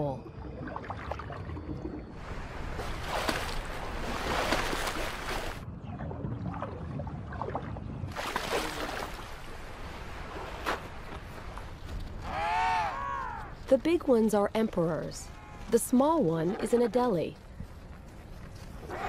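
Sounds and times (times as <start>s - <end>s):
sea water splashing: 0.6s - 5.6s, 6.5s - 11.9s
sharp splash or knock: 2.8s - 5.6s, 8.1s - 9.3s.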